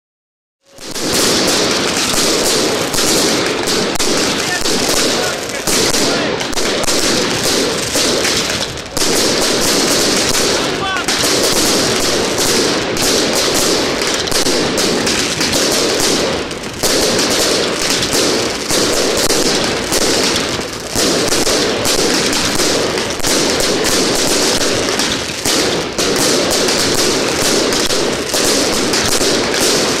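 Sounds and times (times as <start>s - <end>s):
fireworks crackling and popping: 0.6s - 30.0s.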